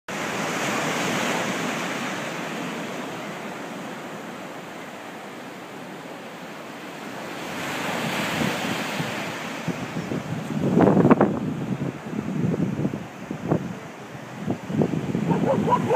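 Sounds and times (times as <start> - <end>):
surf breaking on shore: 0.1 - 15.9
wind buffeting microphone: 7.9 - 15.9.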